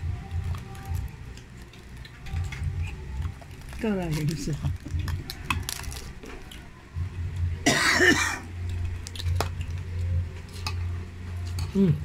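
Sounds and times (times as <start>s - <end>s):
low steady hum: 0.0s - 12.0s
person coughing: 7.6s - 8.5s.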